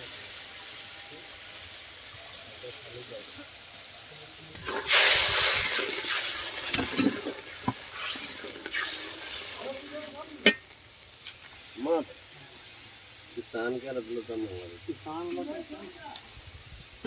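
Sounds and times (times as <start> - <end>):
loud sizzle in hot oil: 0.0 - 17.0
spatula scraping metal pan: 4.6 - 9.6.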